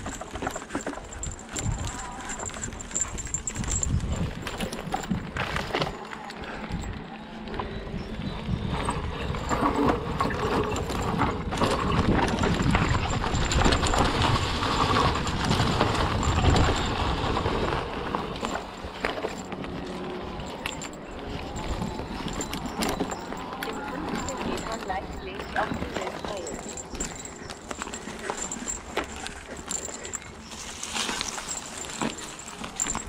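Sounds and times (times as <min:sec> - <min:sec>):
bike knocks and rattles: 0:00.0 - 0:07.0, 0:08.6 - 0:33.0
bike tyres rolling through leaves: 0:11.6 - 0:33.0.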